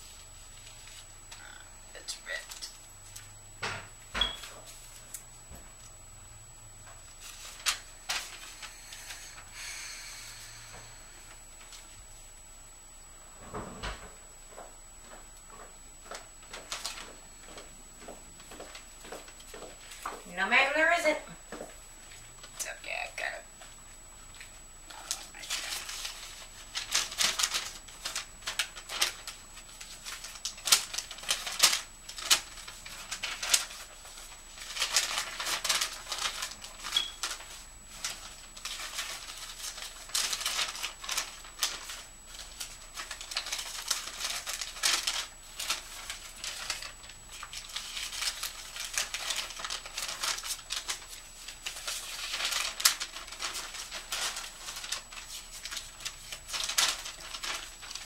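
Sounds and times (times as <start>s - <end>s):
paper rustling and crackling: 0.0s - 1.4s, 4.4s - 5.9s, 6.9s - 9.5s, 16.1s - 17.7s, 24.3s - 58.0s.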